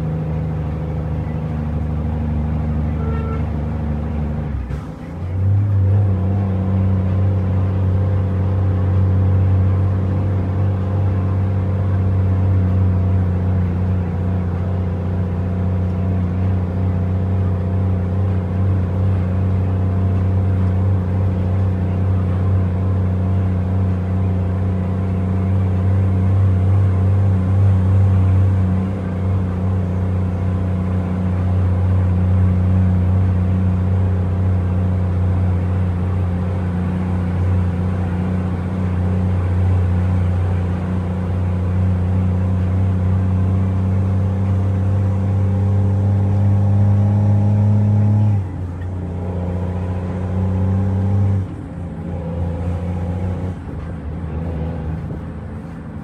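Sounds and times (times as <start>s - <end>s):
truck diesel engine droning: 0.0s - 56.0s.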